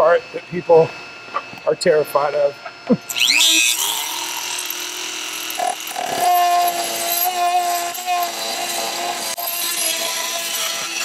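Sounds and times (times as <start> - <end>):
rotary tool whining: 3.0 - 11.0.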